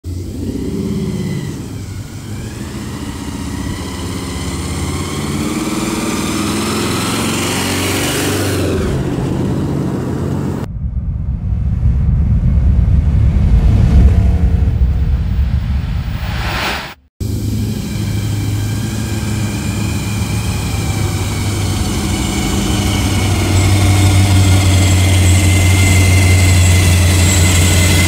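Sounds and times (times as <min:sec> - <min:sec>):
car engine driving up: 0:00.0 - 0:28.0
deep loud rumble: 0:08.7 - 0:28.0.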